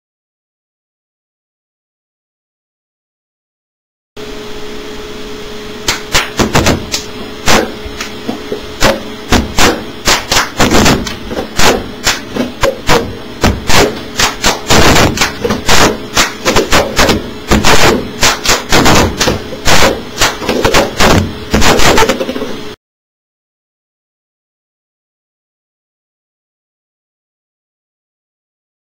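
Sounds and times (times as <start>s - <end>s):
hand claps: 5.9s - 8.2s, 8.8s - 13.0s, 13.7s - 22.1s.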